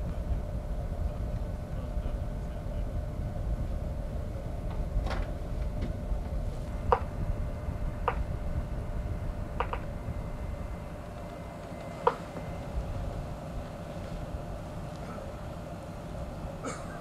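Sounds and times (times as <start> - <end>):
wind buffeting microphone: 0.0 - 16.6
ship machinery rumbling: 0.0 - 17.0
sharp knocks: 6.9 - 7.1, 8.0 - 8.3, 9.6 - 9.9.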